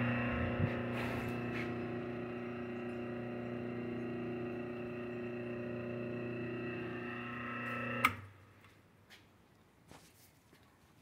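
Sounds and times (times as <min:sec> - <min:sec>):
electric motor humming and whining: 0:00.0 - 0:08.3.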